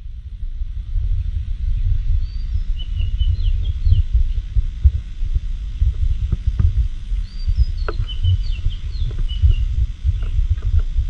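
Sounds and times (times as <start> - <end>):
wind buffeting microphone: 0.0 - 11.0
faint bird chirps: 1.7 - 4.6, 7.2 - 10.5.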